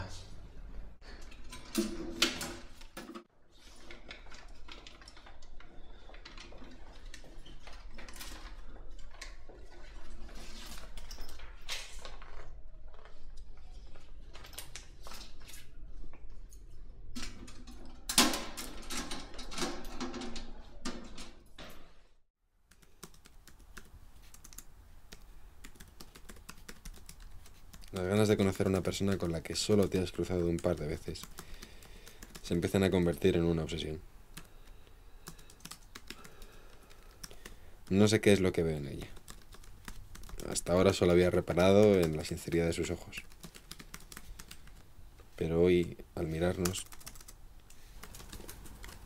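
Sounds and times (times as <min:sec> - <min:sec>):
clanks of metal mailboxes: 0:17.3 - 0:21.8
typing on laptop keyboard: 0:22.7 - 0:32.9, 0:34.3 - 0:38.2, 0:38.9 - 0:44.9, 0:46.4 - 0:49.0.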